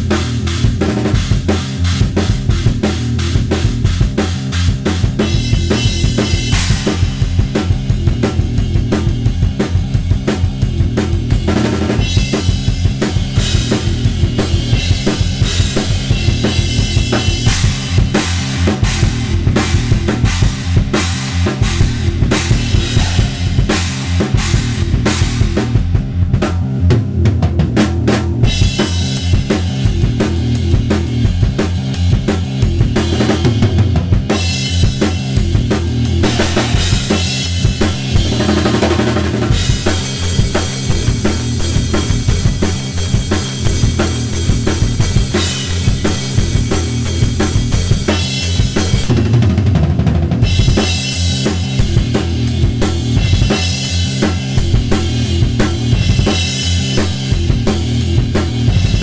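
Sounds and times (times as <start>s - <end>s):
crashing cymbals: 19.8s - 25.6s, 36.2s - 43.6s
snare drum: 36.2s - 41.4s.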